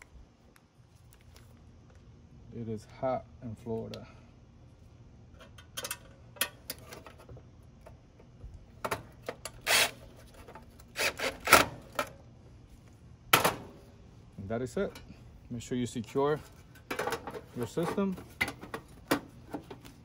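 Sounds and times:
cordless drill driving screw: 9.6s - 10.0s, 11.0s - 11.6s.

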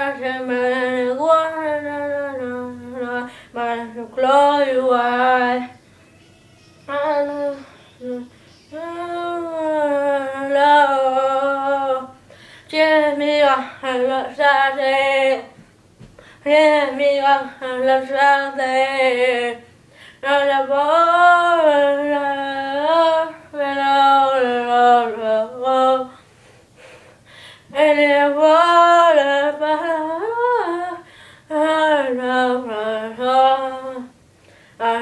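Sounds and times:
boy singing unaccompanied: 0.0s - 15.6s, 16.4s - 26.1s.

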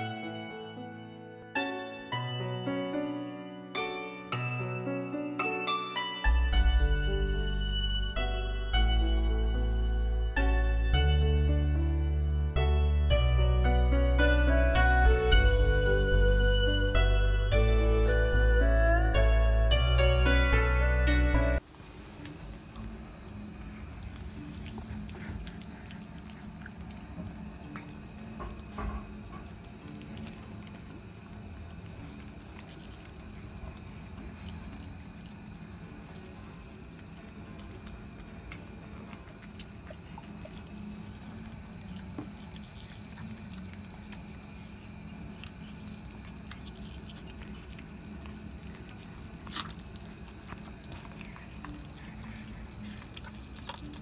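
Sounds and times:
collar bell jingling: 21.6s - 54.0s
kittens chewing and lapping: 21.6s - 54.0s.

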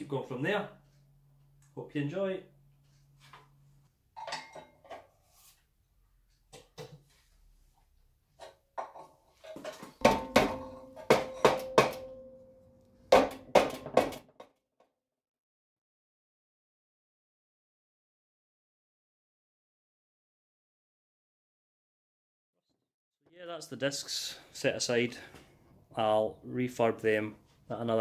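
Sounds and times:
metal bar knocking brake drum: 10.0s - 12.4s.

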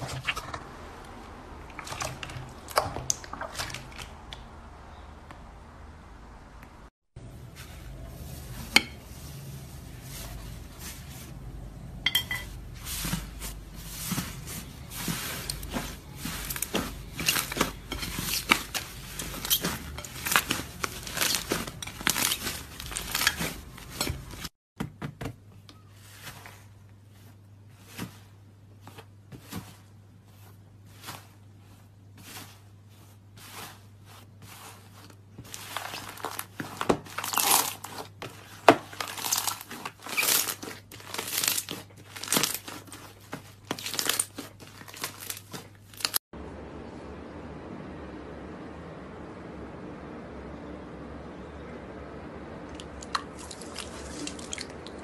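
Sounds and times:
slime crackling as stretched: 39.0s - 43.0s, 52.8s - 55.0s
steady low hum: 46.4s - 55.0s.

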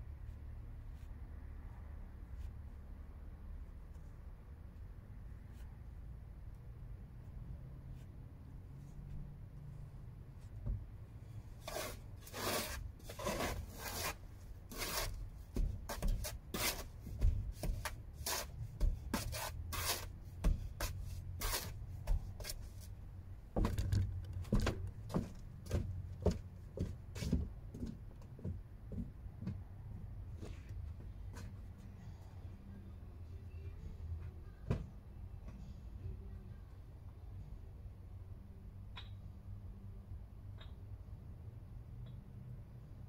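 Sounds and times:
hand tool scraping mortar: 11.6s - 22.8s.

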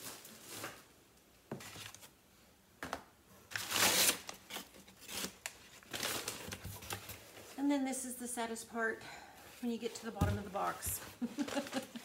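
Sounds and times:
paper packaging rustling: 3.5s - 7.6s, 11.1s - 12.0s.

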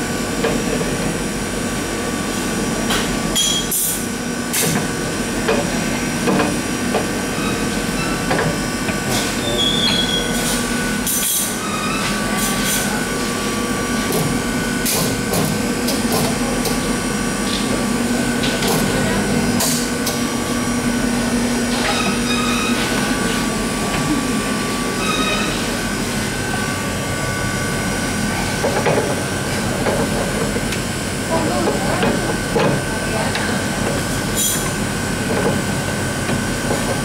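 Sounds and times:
machine hum: 13.0s - 33.8s.

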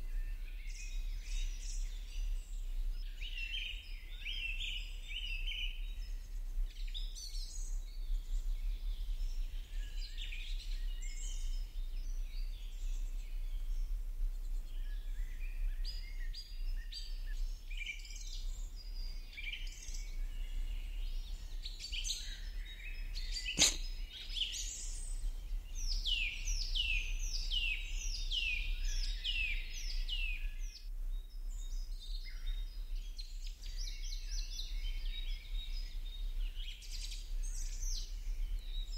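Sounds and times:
small birds chirping: 0.1s - 38.9s
sharp click: 23.6s - 23.9s.

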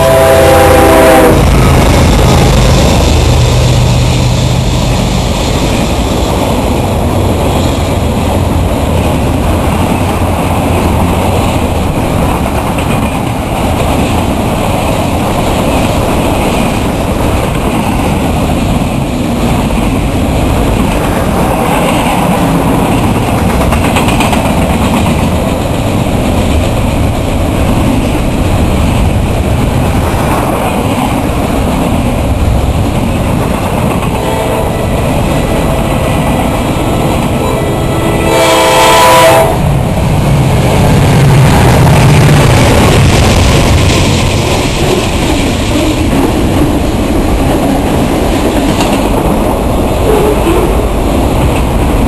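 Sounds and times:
locomotive air horn: 0.0s - 1.5s, 34.2s - 35.8s, 36.8s - 39.6s, 50.0s - 50.7s
train rolling past: 0.0s - 52.0s.

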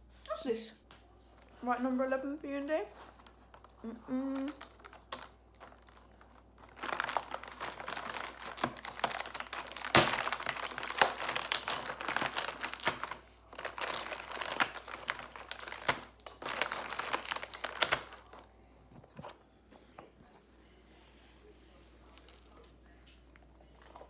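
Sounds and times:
cardboard crinkling and rustling: 4.4s - 19.4s.

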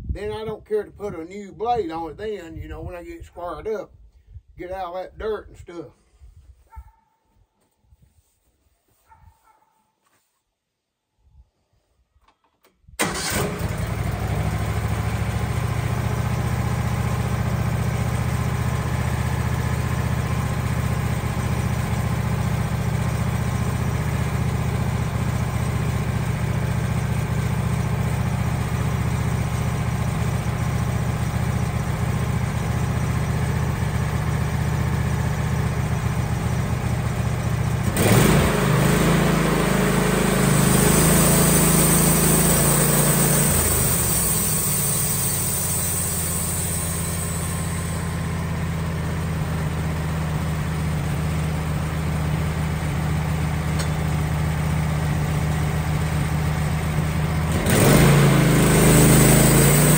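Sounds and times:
sawmill engine running: 13.0s - 59.9s.

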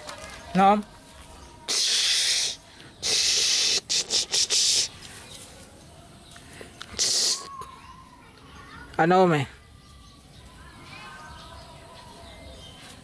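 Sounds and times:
person hissing sharply: 1.7s - 5.0s, 6.9s - 7.6s.

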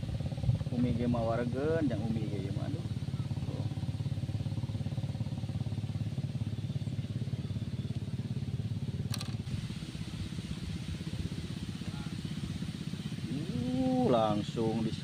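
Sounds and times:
small engine chugging: 0.0s - 15.0s.

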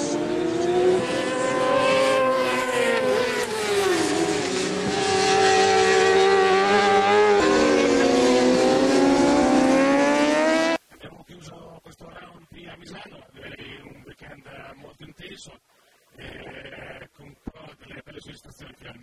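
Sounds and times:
racing motorcycle engines revving: 0.0s - 10.8s.

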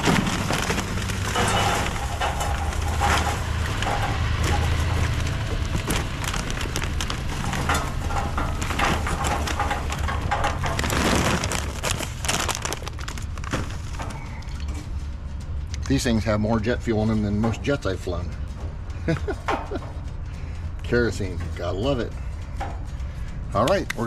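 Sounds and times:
charcoal clattering into metal basket: 0.0s - 14.5s
paper bag rustling: 0.0s - 14.6s.

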